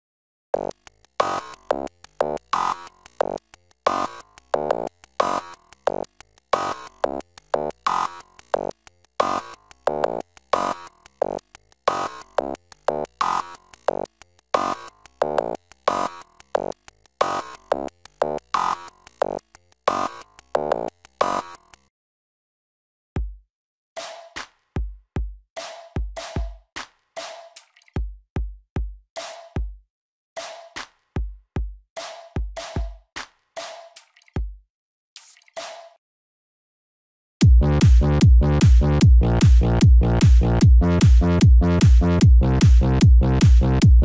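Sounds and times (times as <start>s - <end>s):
electronic music with plucked synth: 0.6s - 21.8s, 37.4s - 44.0s.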